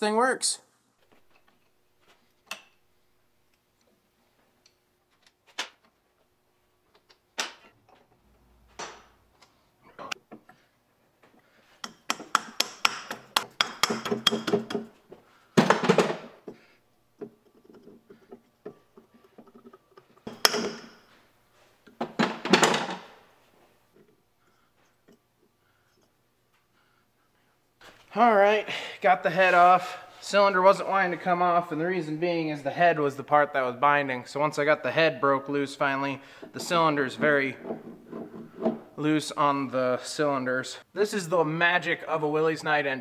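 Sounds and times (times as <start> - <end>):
rapid metal taps: 11.8 - 14.9.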